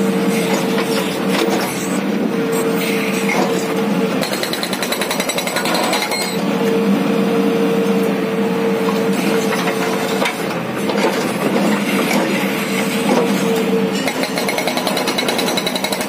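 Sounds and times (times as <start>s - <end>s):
hydraulic breaker hammering rock: 4.2s - 6.4s, 14.0s - 16.0s.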